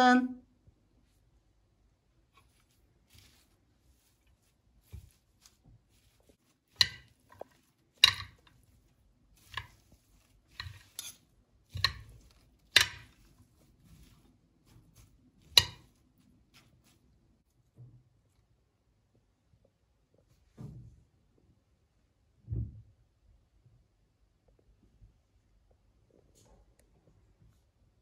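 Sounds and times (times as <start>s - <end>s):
salad being tossed: 2.3s - 17.2s
salad servers clinking on glass bowl: 6.0s - 8.8s, 9.4s - 14.2s, 14.9s - 16.0s.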